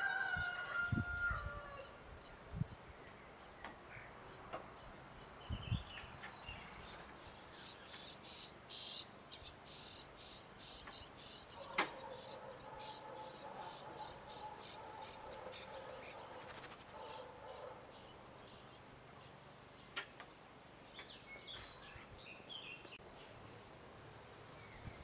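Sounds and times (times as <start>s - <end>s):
nestlings begging calls: 6.5s - 19.4s.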